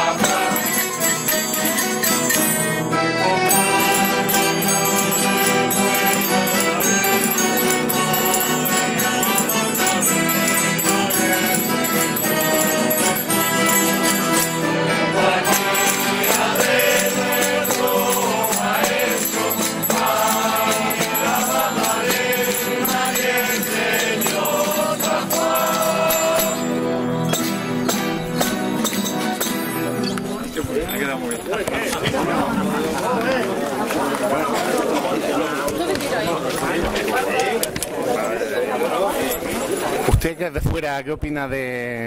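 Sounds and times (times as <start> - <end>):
voices singing in chorus: 0.0 - 28.6
accordion: 0.0 - 30.5
jingling percussion: 0.0 - 32.9
string band playing folk song: 0.0 - 40.0.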